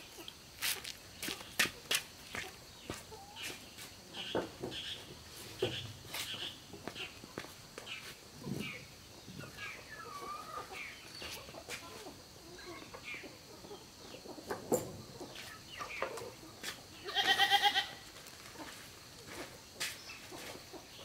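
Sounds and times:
chirps and clucks: 0.0 - 21.0.

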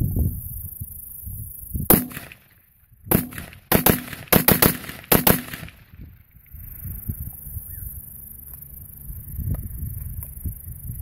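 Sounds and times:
rifle gunshots: 1.9 - 2.5, 3.1 - 5.9.

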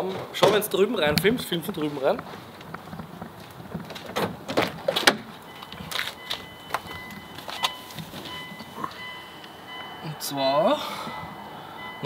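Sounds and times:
car door clicks and knocks: 3.0 - 8.2
electronic warning tone: 5.4 - 12.0.

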